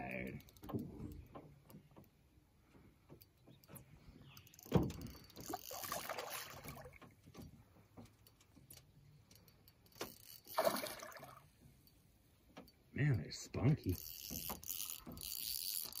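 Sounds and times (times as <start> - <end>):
knocks and clatter on boat: 0.4 - 2.2, 4.6 - 5.5
water splashing: 5.5 - 7.1, 10.5 - 11.5.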